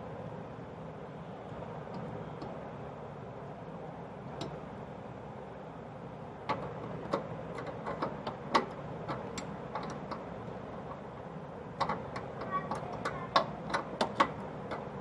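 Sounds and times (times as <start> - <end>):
spanner clicking on metal burner: 6.5 - 10.3.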